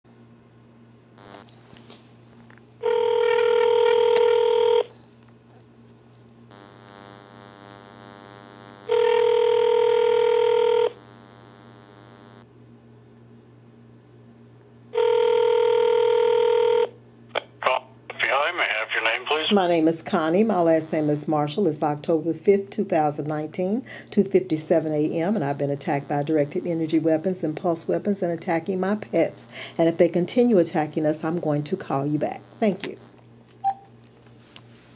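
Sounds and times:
telephone ringback tone: 2.8 - 4.9, 8.9 - 11.0, 15.0 - 16.9.

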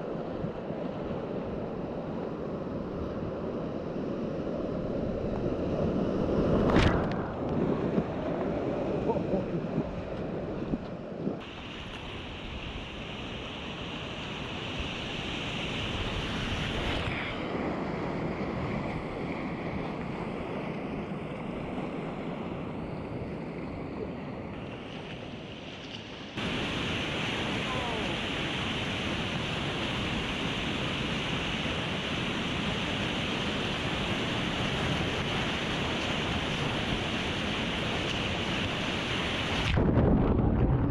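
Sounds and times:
wind buffeting microphone: 2.7 - 11.5, 33.1 - 40.9
whitewater rapids rushing: 26.4 - 39.8.

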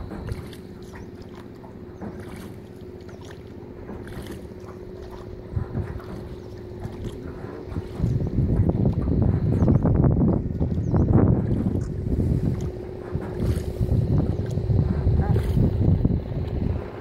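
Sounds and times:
boat engine humming: 0.0 - 17.0
rushing water: 0.0 - 17.0
wind buffeting microphone: 3.8 - 17.0.

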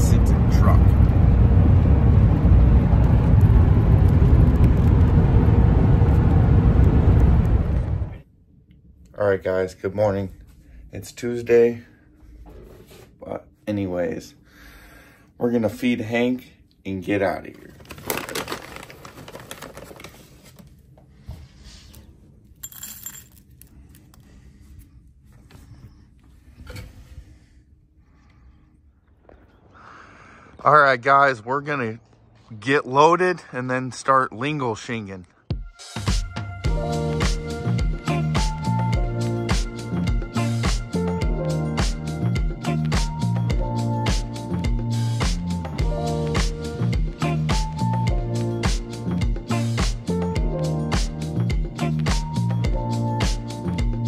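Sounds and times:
truck engine and road noise: 0.0 - 8.2
hand rustling in plastic bag: 17.6 - 20.6
pellets rattling into a bowl: 17.8 - 20.0.

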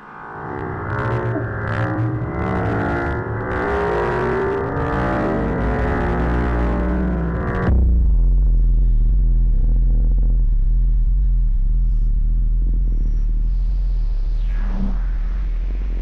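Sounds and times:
deep rumbling drone: 0.0 - 16.0
faint sustained tones: 11.0 - 16.0.

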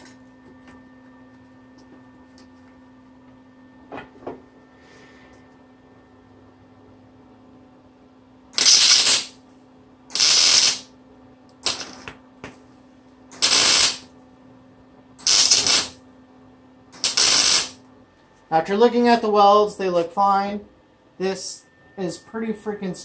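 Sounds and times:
faint steady hum: 0.0 - 23.0
welding arc bursts: 8.6 - 9.4, 10.1 - 10.9, 11.6 - 12.0, 13.4 - 14.1, 15.2 - 16.0, 17.0 - 17.8.

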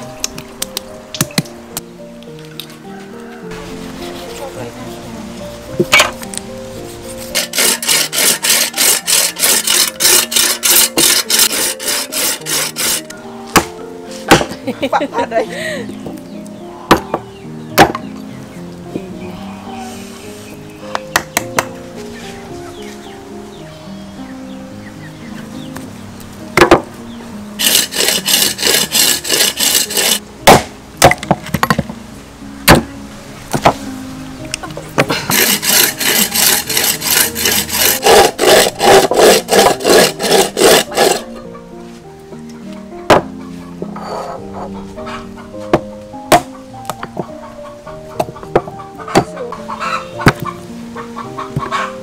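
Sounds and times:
hand saw cutting bone: 7.2 - 13.7, 27.6 - 30.6, 35.3 - 41.3
cleaver striking bone: 13.5 - 14.5, 16.9 - 17.2, 17.8 - 18.1, 29.7 - 31.4, 32.7 - 32.9
knocks on wooden chopping block: 14.3 - 14.5, 17.8 - 18.1, 26.6 - 26.9, 32.7 - 32.9, 43.1 - 43.3, 45.7 - 46.5, 50.2 - 50.5.

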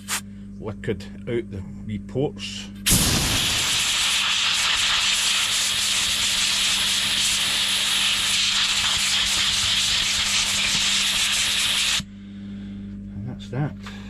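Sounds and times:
compressed air blow gun hissing: 2.9 - 12.1.

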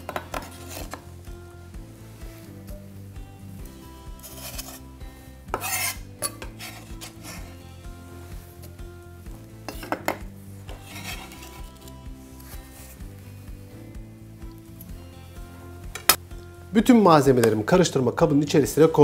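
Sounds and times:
soft background music: 0.0 - 19.0
knife scraping bamboo cutting board: 0.1 - 1.0, 4.2 - 4.9, 5.5 - 7.6, 10.7 - 13.0.

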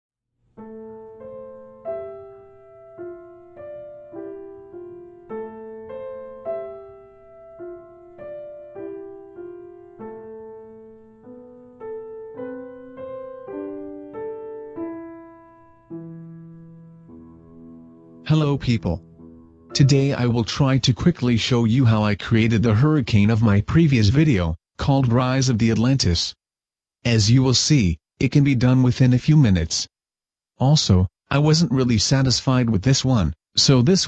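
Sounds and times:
slow solo piano: 0.5 - 18.2.

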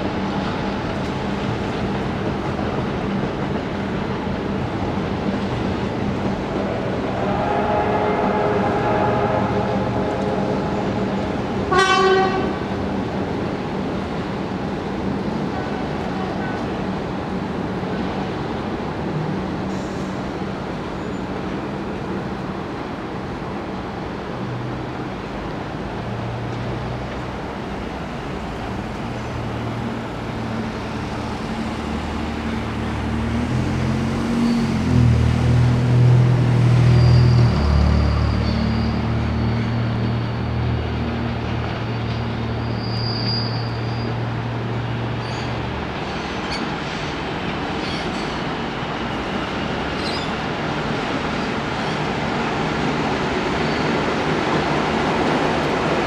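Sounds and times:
train passing: 0.0 - 56.0
high squeal: 6.5 - 12.0, 36.8 - 40.8, 42.0 - 44.2.

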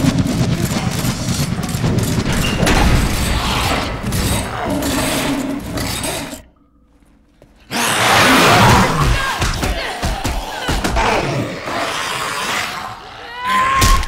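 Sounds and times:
crashing metal impacts: 0.0 - 6.5.

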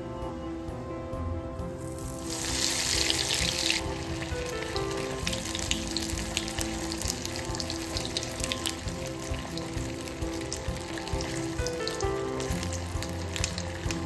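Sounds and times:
food deep-frying in hot oil: 1.8 - 14.0.

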